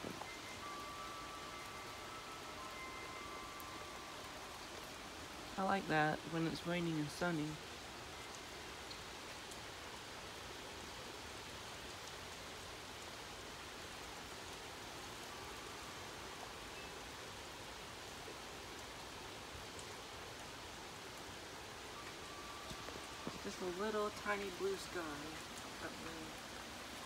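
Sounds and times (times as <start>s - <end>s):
steady rain: 0.0s - 27.0s.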